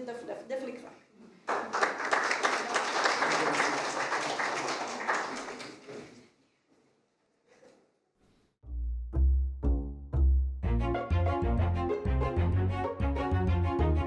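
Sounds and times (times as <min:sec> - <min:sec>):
audience applauding: 0:01.5 - 0:06.1.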